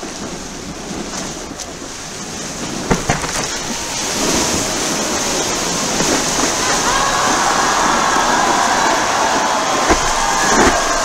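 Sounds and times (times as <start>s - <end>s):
ocean surf: 0.0s - 11.0s
wind rushing: 0.0s - 11.0s
sharp knocks: 2.9s - 3.6s, 9.8s - 11.0s.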